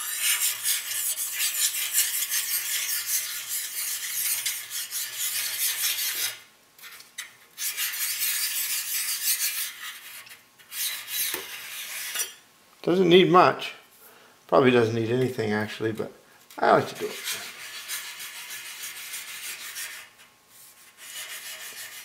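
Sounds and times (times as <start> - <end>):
sharpening stone scraping blade: 0.0 - 6.4, 7.6 - 10.1, 10.7 - 12.4.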